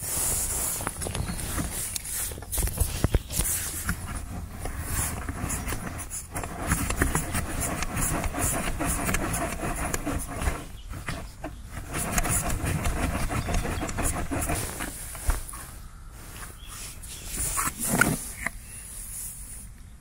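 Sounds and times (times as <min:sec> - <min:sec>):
fingers rasping on metal mesh: 0:00.5 - 0:15.0.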